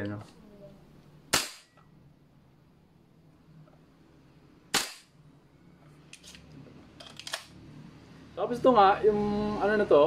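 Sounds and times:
airsoft rifle shot: 1.3s - 1.7s, 4.7s - 5.1s.

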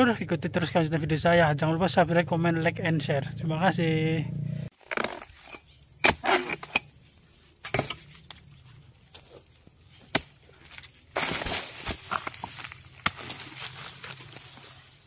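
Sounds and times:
dry palm fronds rustling: 9.1s - 15.0s.

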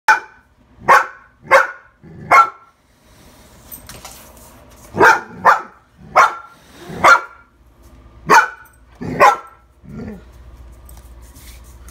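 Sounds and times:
young dog barking sharply: 0.1s - 2.6s, 5.0s - 7.4s, 8.3s - 9.6s.

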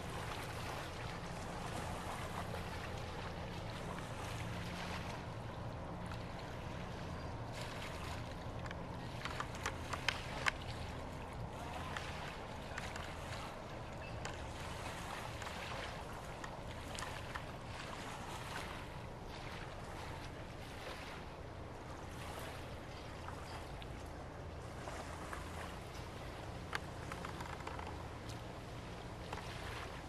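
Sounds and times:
ship engine droning: 0.0s - 20.6s
faint clicks: 8.6s - 10.6s, 26.7s - 28.4s.

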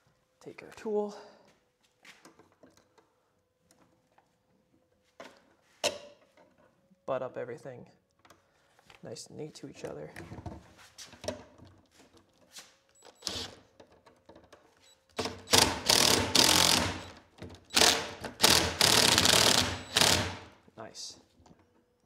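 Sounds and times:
cordless driver spinning: 15.2s - 17.1s, 17.7s - 20.4s.

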